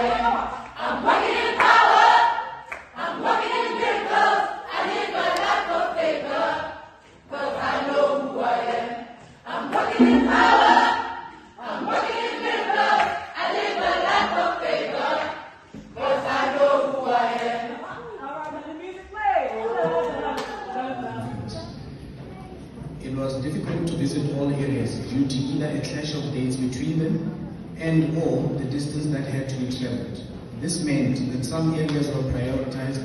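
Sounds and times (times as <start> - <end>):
mixed choir singing: 0.0 - 18.3.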